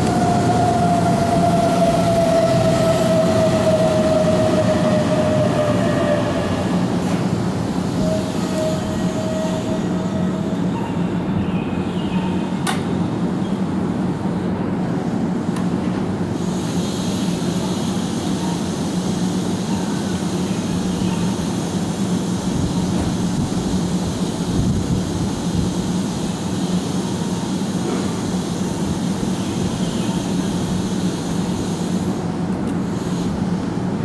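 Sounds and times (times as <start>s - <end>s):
train equipment humming: 0.0s - 34.0s.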